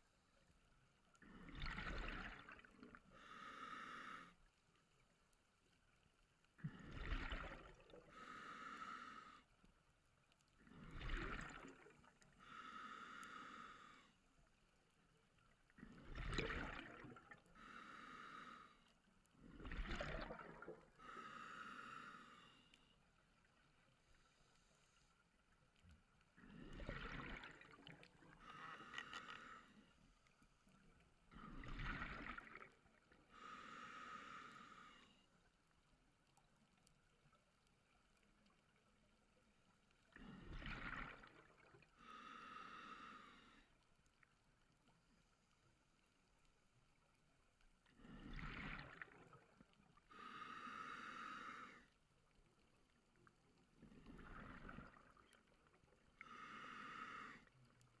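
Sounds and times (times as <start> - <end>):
underwater bubbles: 0.0 - 58.0
diver breathing through regulator: 3.1 - 4.4, 8.0 - 9.5, 12.4 - 14.2, 17.5 - 18.9, 21.0 - 22.9, 26.4 - 30.0, 33.3 - 35.3, 42.0 - 43.7, 50.1 - 52.0, 56.2 - 57.6.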